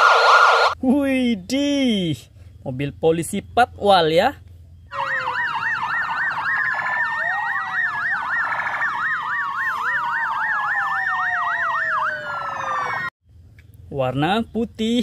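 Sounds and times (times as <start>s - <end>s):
electronic police siren: 0.0s - 0.8s, 4.9s - 13.1s.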